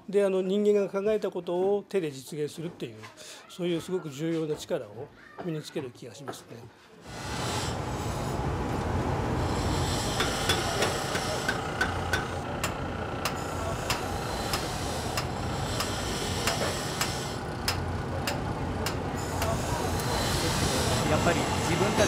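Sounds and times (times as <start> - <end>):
coal forge rumble: 7.1 - 22.0
hammer striking iron on anvil: 10.2 - 19.5.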